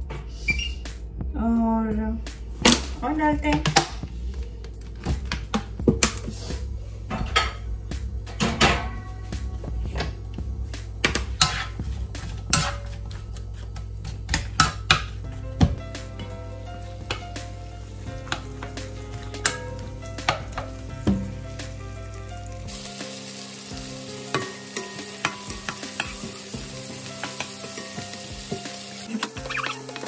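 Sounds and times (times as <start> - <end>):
spatula scraping and tapping pan: 11.0 - 15.1, 24.3 - 30.0
onions sizzling in oil: 16.0 - 30.0.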